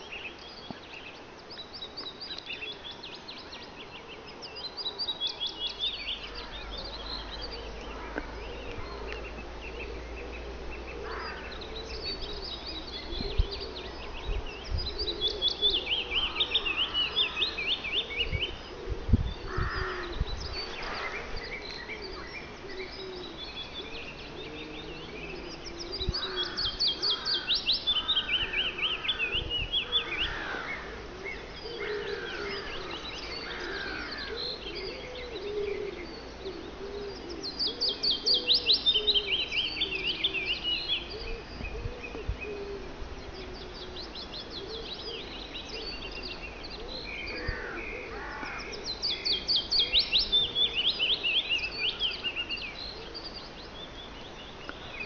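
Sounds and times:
other birds calling faintly: 0:00.0 - 0:55.0
warbler singing: 0:00.0 - 0:55.0.

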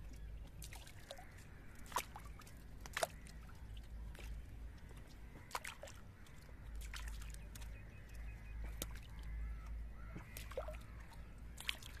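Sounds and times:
water splashing: 0:00.0 - 0:12.0.

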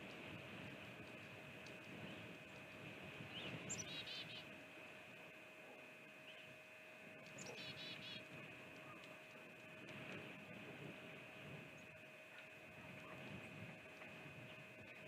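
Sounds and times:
faint steady hum: 0:00.0 - 0:15.0
songbird singing: 0:03.2 - 0:04.5, 0:06.2 - 0:06.6, 0:07.2 - 0:09.1.

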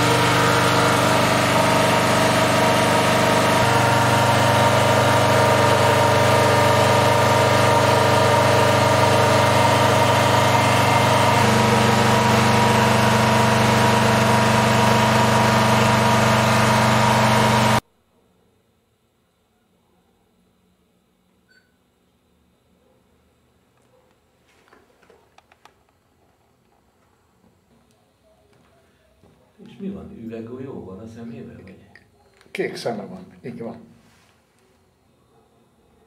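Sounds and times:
generator engine humming: 0:00.0 - 0:17.8.

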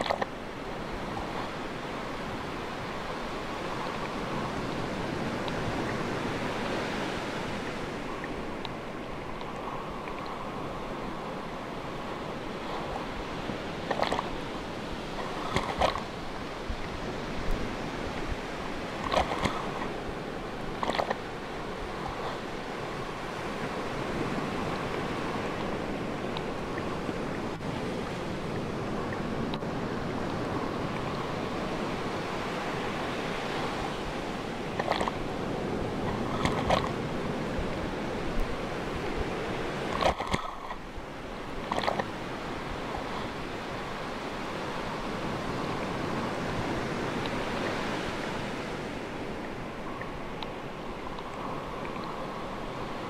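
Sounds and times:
sea waves washing in: 0:00.0 - 0:53.0.

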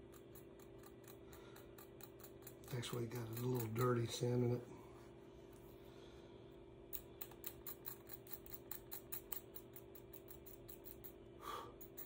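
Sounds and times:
metal pick scratching wood: 0:00.0 - 0:04.2
faint steady hum: 0:00.0 - 0:12.0.

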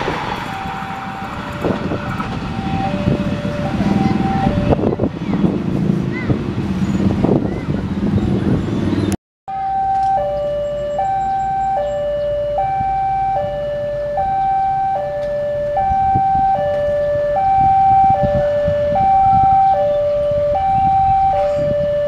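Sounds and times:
rumbling road noise: 0:00.0 - 0:22.0
level crossing two-tone alarm: 0:00.3 - 0:05.0, 0:09.5 - 0:22.0.

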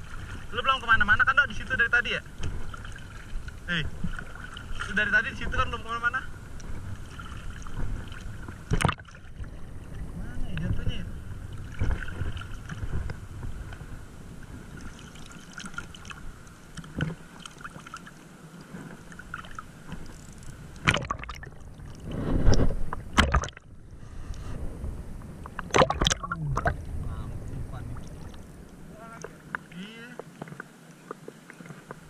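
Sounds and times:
seawater lapping and sloshing: 0:00.0 - 0:32.0
water splashing and dripping: 0:20.8 - 0:22.0, 0:25.5 - 0:26.8.

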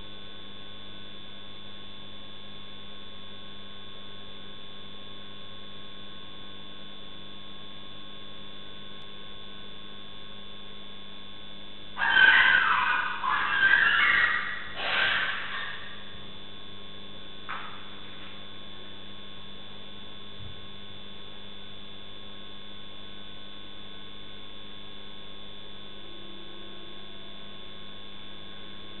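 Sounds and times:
electrical hum with fixed tones: 0:00.0 - 0:29.0
short animal cry: 0:12.0 - 0:16.2.

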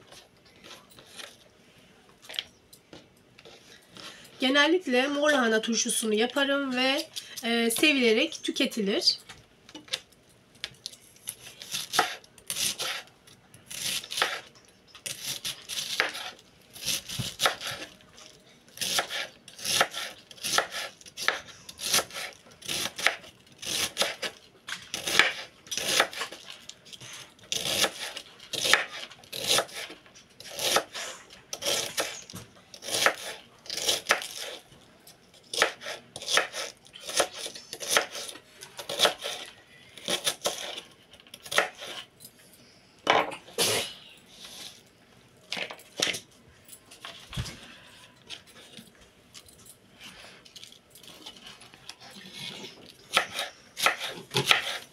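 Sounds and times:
knife cutting cabbage on board: 0:11.3 - 0:13.1, 0:13.7 - 0:17.9, 0:18.7 - 0:26.4, 0:27.1 - 0:34.6, 0:35.5 - 0:42.1, 0:51.0 - 0:54.9.

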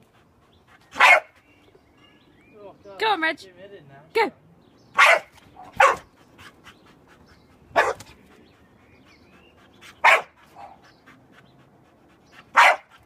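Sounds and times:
puppy barking: 0:01.0 - 0:01.3, 0:05.0 - 0:06.1, 0:07.8 - 0:08.0, 0:10.0 - 0:10.8, 0:12.6 - 0:12.9.

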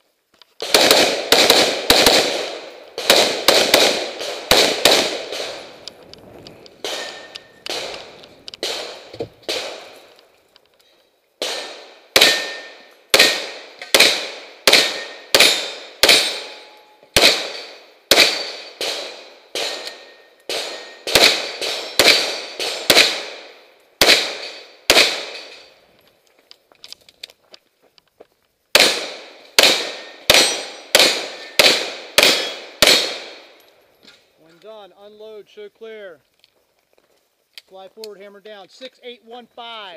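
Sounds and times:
rapid gunshots with echo: 0:00.6 - 0:05.8, 0:11.4 - 0:16.5, 0:20.5 - 0:25.4.

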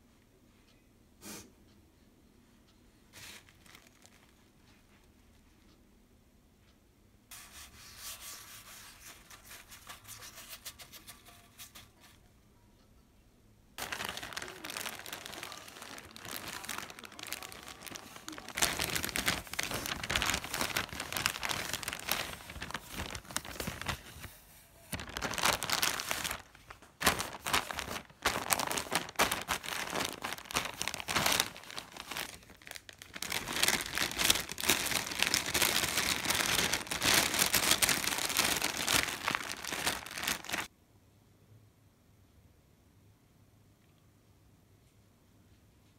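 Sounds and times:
paper and plastic packaging crinkling: 0:03.2 - 0:04.5, 0:13.8 - 0:40.7.

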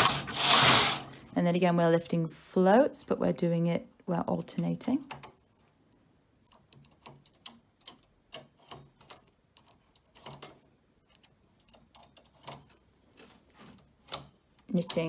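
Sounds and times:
faint clicks of metal needles: 0:04.4 - 0:12.9, 0:14.0 - 0:15.0.

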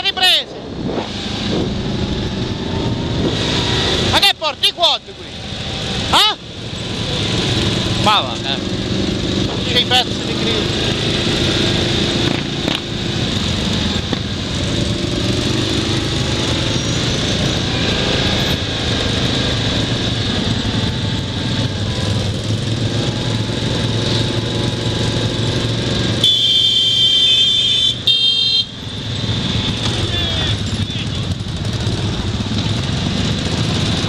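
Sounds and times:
wind noise on microphone: 0:00.6 - 0:03.8
quad bike engine running: 0:05.4 - 0:34.0
horn tooting: 0:26.1 - 0:28.8.

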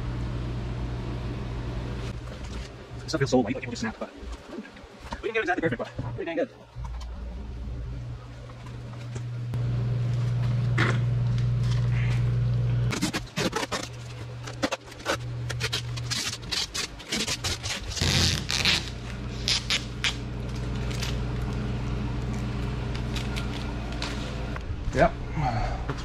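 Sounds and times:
steady low hum: 0:00.0 - 0:26.0
vinyl film crackling and peeling: 0:12.9 - 0:24.6.

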